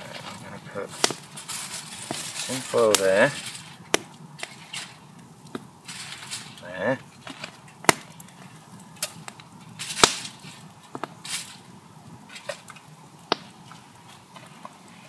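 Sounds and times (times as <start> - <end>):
tin foil crinkling: 0.0 - 5.1, 5.8 - 11.7.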